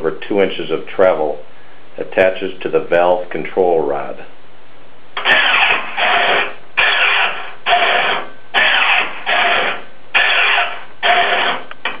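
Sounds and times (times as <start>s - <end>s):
linear actuator motor running: 5.2s - 12.0s.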